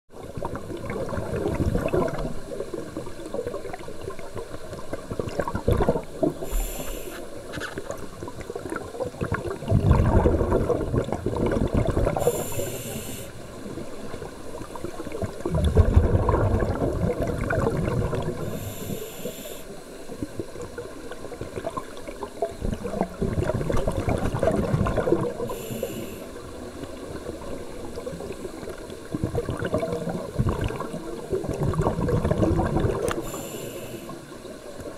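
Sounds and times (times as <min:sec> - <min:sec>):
exhaled bubbles bursting: 0:00.3 - 0:07.0, 0:07.8 - 0:12.7, 0:14.8 - 0:18.6, 0:21.4 - 0:25.6, 0:27.9 - 0:33.3
regulator hissing inhalations: 0:06.4 - 0:07.3, 0:12.2 - 0:13.4, 0:18.4 - 0:19.8, 0:25.5 - 0:26.3, 0:33.2 - 0:34.2.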